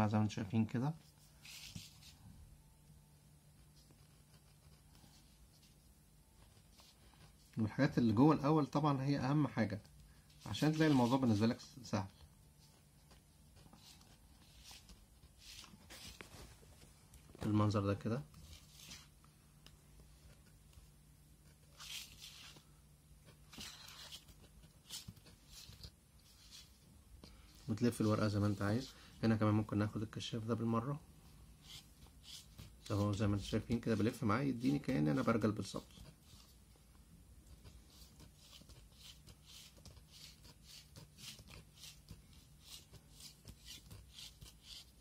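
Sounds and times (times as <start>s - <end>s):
craft knife cutting paper: 31.6s - 33.2s, 37.9s - 45.0s.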